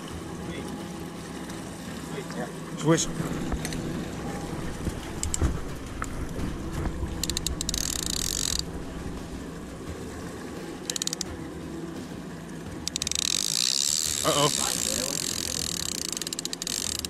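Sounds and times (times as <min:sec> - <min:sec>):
boat engine running: 0:00.0 - 0:17.0
water: 0:00.0 - 0:17.0
wind: 0:00.0 - 0:17.0
rapid clicking with hiss: 0:05.1 - 0:06.2, 0:06.8 - 0:08.6, 0:10.8 - 0:11.3, 0:12.9 - 0:17.0.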